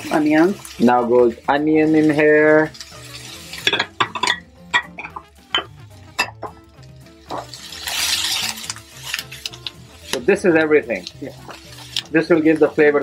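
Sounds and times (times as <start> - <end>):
onions sizzling in oil: 0.0 - 5.8, 6.6 - 13.0
background music: 0.0 - 13.0
spatula scraping frying pan: 1.8 - 5.4, 7.2 - 10.2, 11.0 - 13.0.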